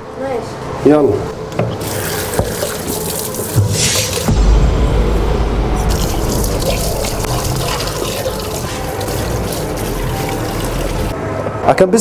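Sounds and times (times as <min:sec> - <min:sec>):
tap water running into sink: 0:01.6 - 0:04.3, 0:05.9 - 0:11.1.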